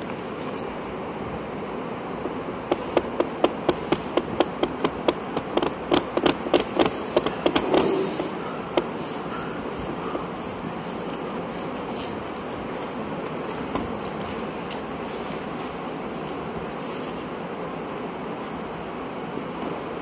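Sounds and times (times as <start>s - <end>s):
sharp taps: 2.7s - 7.9s.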